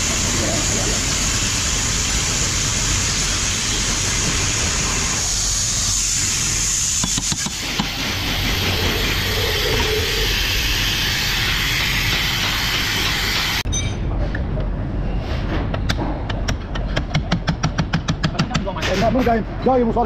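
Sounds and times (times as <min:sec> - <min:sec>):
loud workshop machinery noise: 0:00.0 - 0:13.9.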